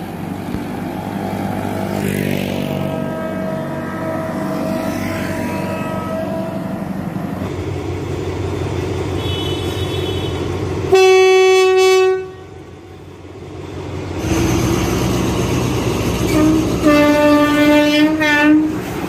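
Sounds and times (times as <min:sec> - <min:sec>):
road traffic noise: 0:00.0 - 0:19.0
train rumble: 0:00.0 - 0:19.0
locomotive air horn blast: 0:02.8 - 0:07.3, 0:09.2 - 0:12.7, 0:16.2 - 0:19.0.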